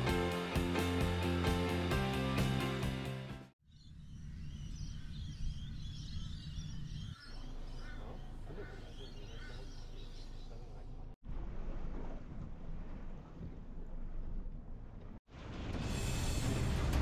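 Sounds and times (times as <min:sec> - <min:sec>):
birds calling: 0:03.6 - 0:11.2.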